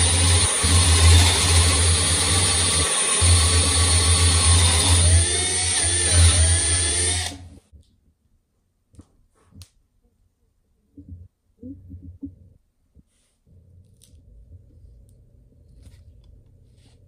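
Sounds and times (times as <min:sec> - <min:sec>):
power tool humming: 0:00.0 - 0:07.5.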